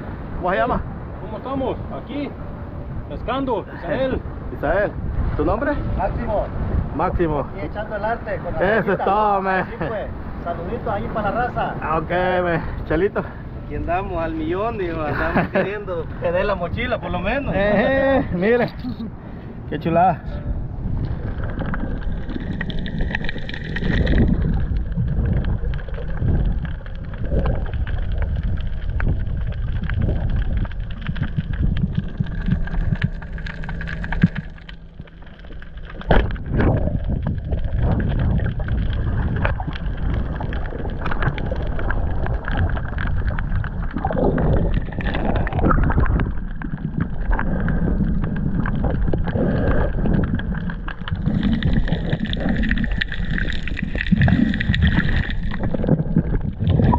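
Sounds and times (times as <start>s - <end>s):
muffled water sloshing underwater: 0.0s - 7.6s, 19.1s - 56.9s.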